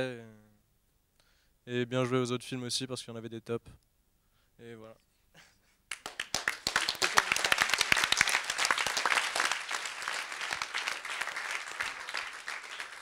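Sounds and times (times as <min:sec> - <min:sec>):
audience applauding: 0:05.9 - 0:13.0.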